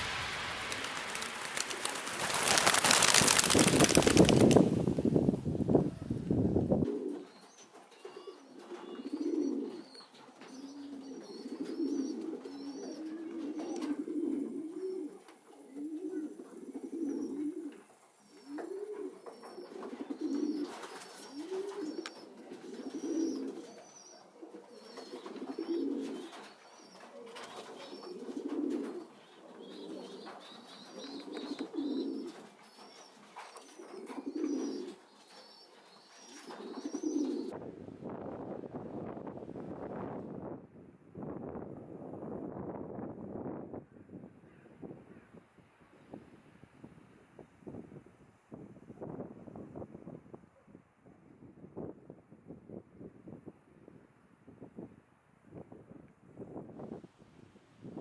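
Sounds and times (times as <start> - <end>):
pigeon cooing: 6.8 - 37.5.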